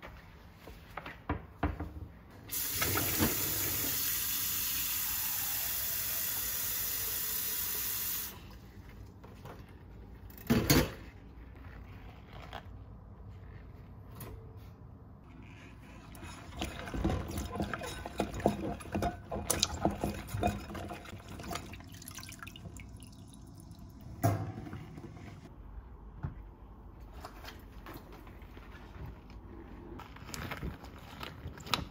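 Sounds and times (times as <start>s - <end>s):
tap water running into sink: 16.6s - 24.7s.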